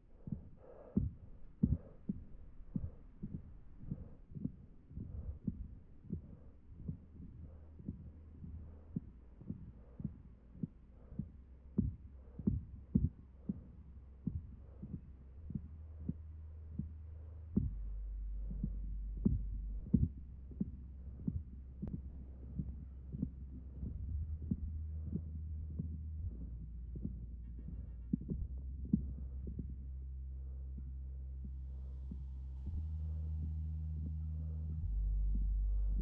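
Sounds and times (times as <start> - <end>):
soft low thumps: 0.0 - 36.0
steady low hum: 0.0 - 36.0.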